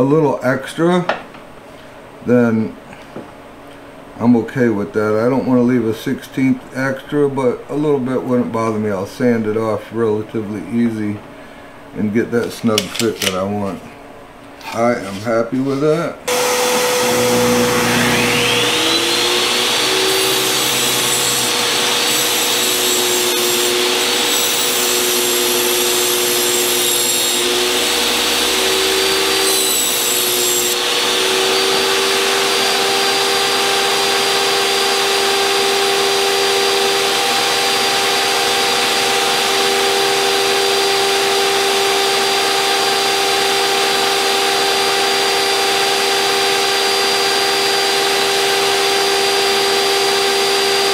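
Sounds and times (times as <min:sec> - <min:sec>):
table saw motor whining: 0:16.3 - 0:50.9
table saw ripping plywood: 0:16.3 - 0:50.9.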